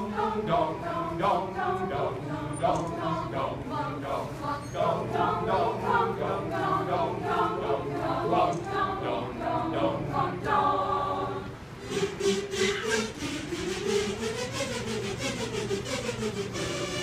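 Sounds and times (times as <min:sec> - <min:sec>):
choir singing a cappella: 0:00.0 - 0:17.0
short noisy strokes: 0:11.6 - 0:17.0.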